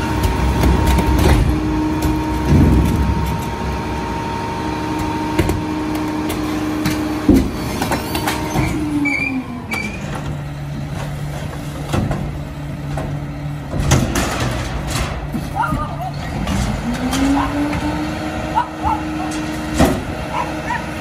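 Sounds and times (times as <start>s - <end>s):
garbage truck diesel engine: 0.0s - 21.0s
loud metal clank: 0.7s - 4.0s, 13.7s - 15.6s.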